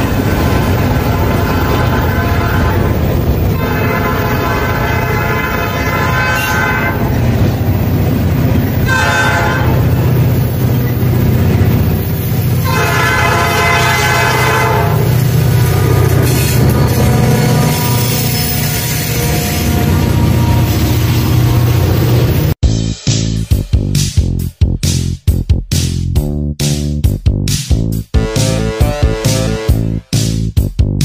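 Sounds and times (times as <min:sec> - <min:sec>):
freight cars rumbling past: 0:00.0 - 0:22.6
locomotive horn blasts: 0:00.8 - 0:07.2, 0:08.8 - 0:10.0, 0:12.6 - 0:22.2, 0:28.2 - 0:30.0.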